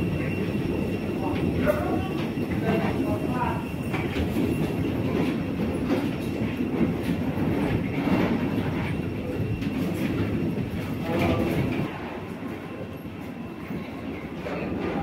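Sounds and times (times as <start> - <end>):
suitcase wheels rumbling and clattering: 0.0 - 11.9.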